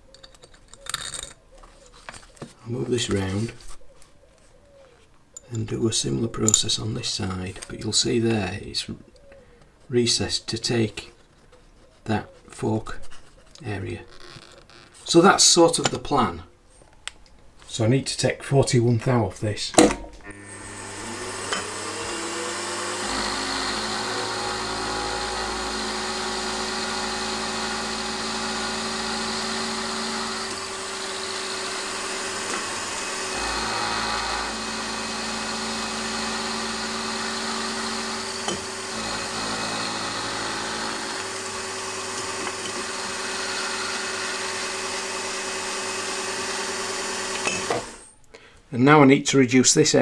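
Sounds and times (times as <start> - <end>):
end mill cutting metal: 19.8 - 48.1
milling machine motor whine: 20.3 - 48.0.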